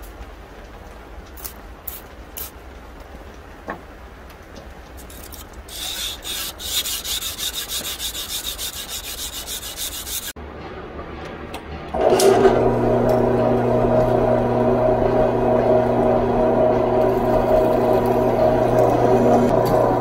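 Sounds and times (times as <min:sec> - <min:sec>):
sandpaper rubbing on steel: 0:05.0 - 0:10.4.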